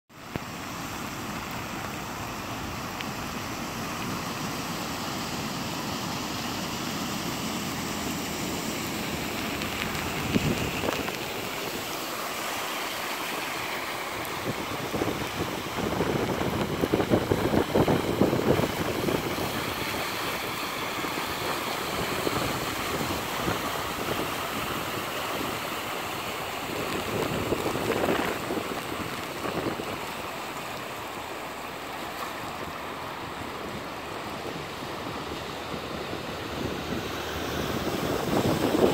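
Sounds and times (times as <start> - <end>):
floodwater flowing: 0.1 - 38.9
vehicles driving through water: 0.1 - 38.9
wind noise on microphone: 8.3 - 12.0, 14.0 - 30.7, 32.6 - 38.9.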